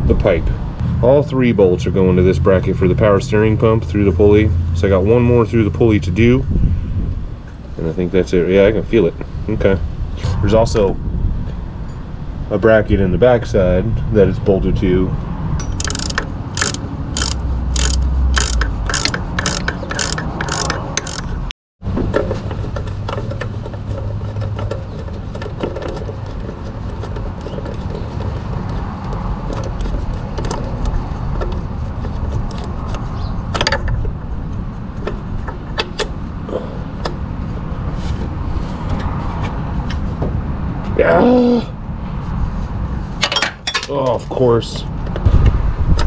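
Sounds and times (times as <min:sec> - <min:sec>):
tool handling clicks: 0:15.6 - 0:21.4
ratchet wrench clicking: 0:15.6 - 0:21.5.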